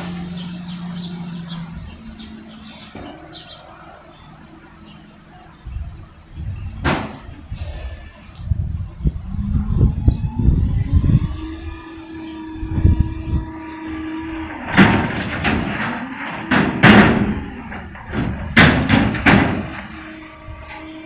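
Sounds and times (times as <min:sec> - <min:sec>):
garbage truck humming: 0:00.0 - 0:21.0
container banging and clanking: 0:14.6 - 0:20.0.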